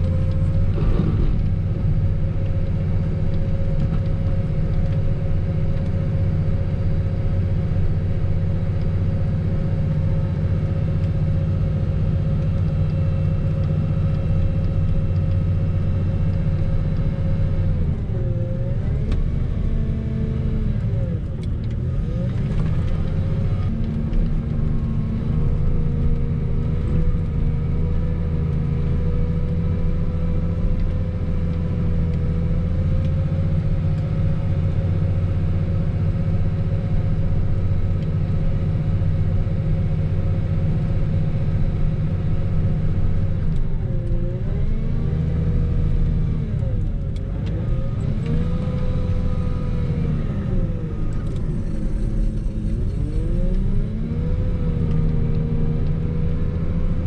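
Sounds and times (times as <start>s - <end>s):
diesel engine running under load: 0.0s - 57.0s.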